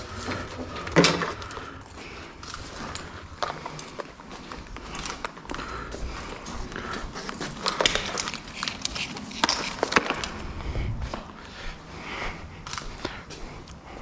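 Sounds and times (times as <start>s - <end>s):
engine parts clicking and knocking: 0.0s - 10.3s.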